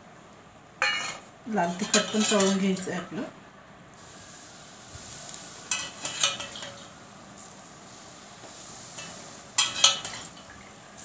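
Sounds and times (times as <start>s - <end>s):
hot oil sizzling on spices: 0.7s - 11.0s
sharp crackles and clinks: 0.8s - 2.9s, 5.2s - 7.6s, 8.8s - 10.7s.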